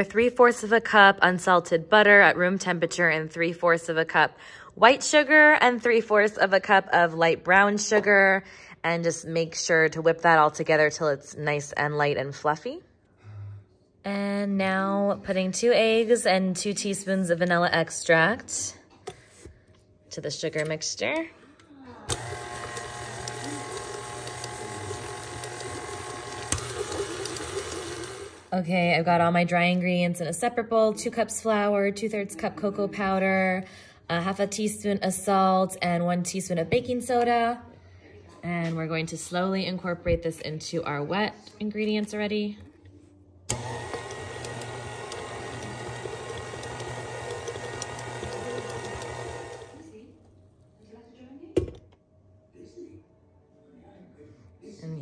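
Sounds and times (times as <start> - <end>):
stand mixer whirring: 22.1 - 28.5, 43.5 - 49.8.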